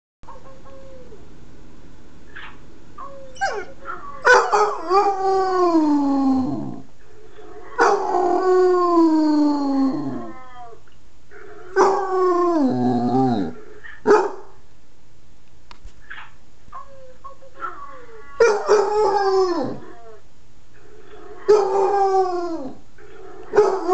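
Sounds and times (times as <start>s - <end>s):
dog yelping: 2.4s - 4.8s
dog howling: 3.0s - 6.8s, 7.7s - 10.8s, 11.8s - 13.6s, 16.9s - 20.2s, 21.4s - 22.8s.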